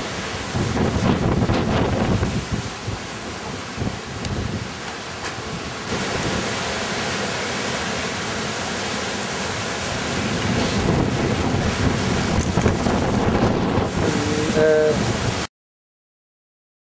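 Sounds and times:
wind buffeting microphone: 0.0s - 4.8s, 9.9s - 15.5s.

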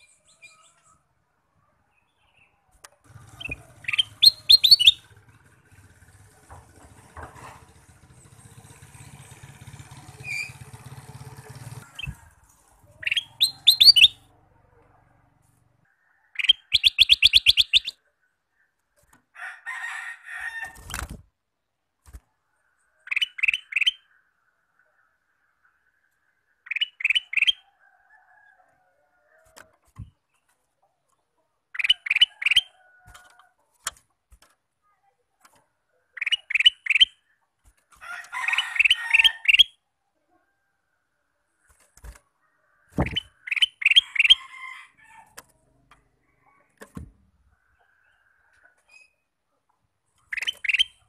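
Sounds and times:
bird singing whistled notes: 3.4s - 5.0s, 13.1s - 14.2s, 16.4s - 18.0s
bird knocking in cage: 43.0s - 43.3s.

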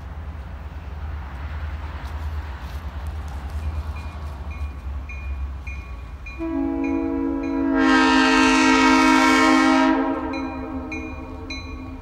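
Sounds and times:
crossing bell dinging: 3.6s - 12.0s
train horn chord: 6.4s - 12.0s.

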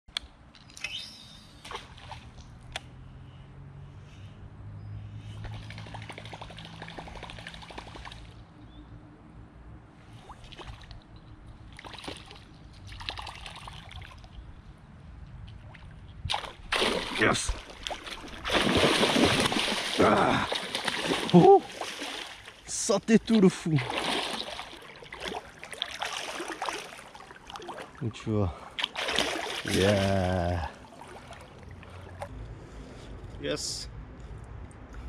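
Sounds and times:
water trickling and sloshing: 5.2s - 8.5s, 10.0s - 32.4s.

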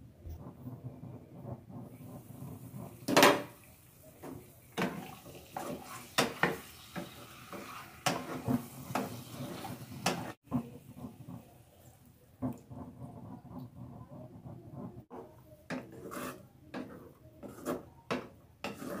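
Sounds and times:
spatula scraping and knocking a pan: 0.3s - 3.6s, 4.2s - 11.5s, 12.4s - 19.0s
chicken sizzling in oil: 1.4s - 10.4s.

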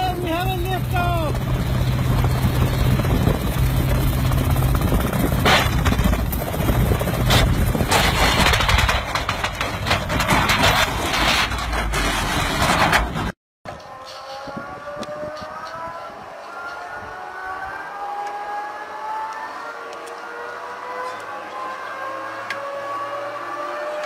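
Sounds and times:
wind rushing over microphone: 0.0s - 9.2s, 14.3s - 17.9s
engine hum: 0.0s - 10.7s
crackling rush of car tipping over: 7.2s - 13.3s.

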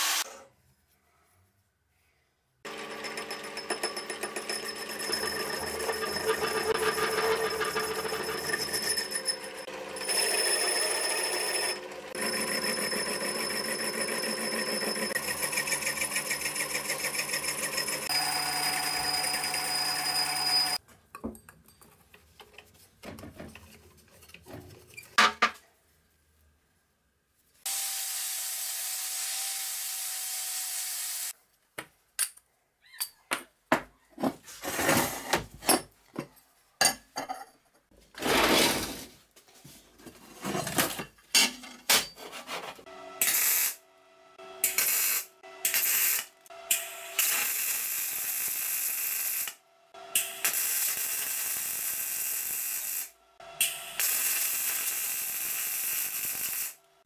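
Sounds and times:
angle grinder running: 2.7s - 20.8s
metal lathe whining: 2.7s - 20.8s.

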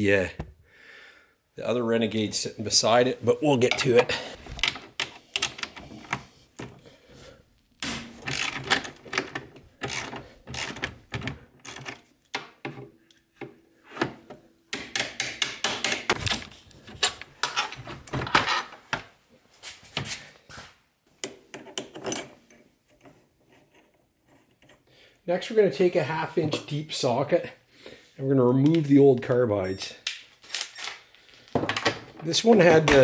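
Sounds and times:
ratchet clicking: 9.8s - 10.8s.

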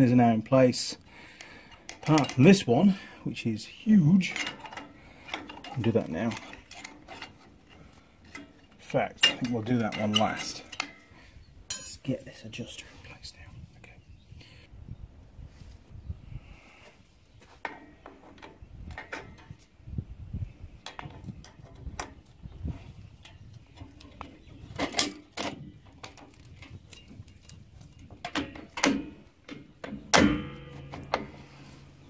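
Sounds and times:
metal knocks ringing: 28.3s - 32.0s.

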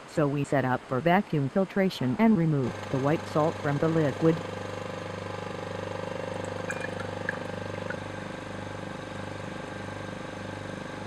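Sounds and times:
vacuum pump humming: 2.2s - 11.0s
faint liquid ticks in flask: 6.4s - 8.0s.

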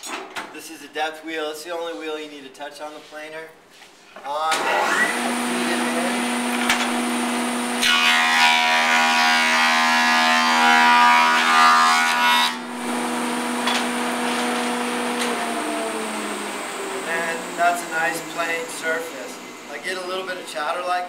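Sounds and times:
planer cutting wood with chatter: 4.5s - 21.0s
thickness planer running: 4.5s - 21.0s.

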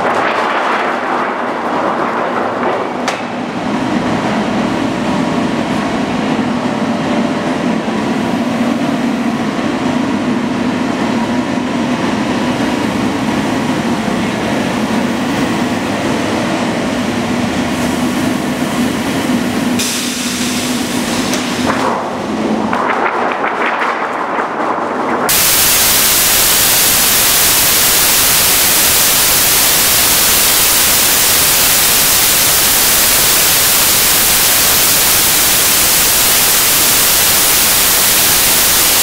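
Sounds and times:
sheet metal line running: 19.0s - 39.0s
hiss: 19.8s - 21.6s, 25.3s - 39.0s.

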